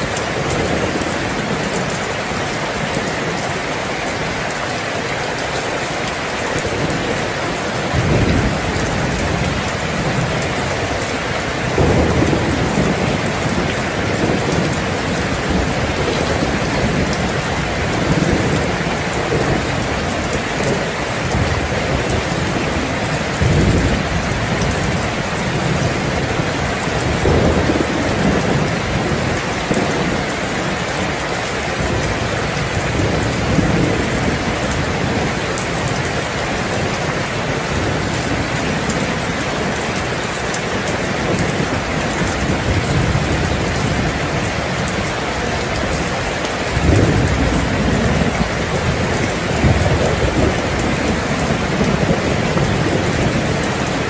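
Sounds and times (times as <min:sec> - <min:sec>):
heavy rain: 0:00.0 - 0:54.0
thunder rumbling: 0:00.0 - 0:54.0.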